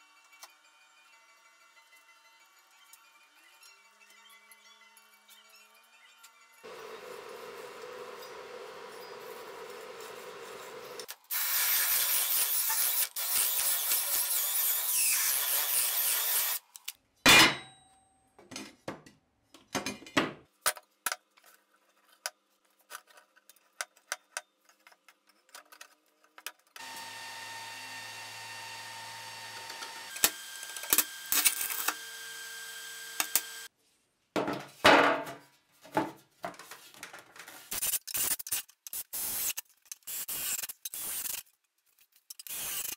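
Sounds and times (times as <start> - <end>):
power tool hissing: 6.7 - 16.6, 26.8 - 33.7
motor humming: 26.8 - 33.7.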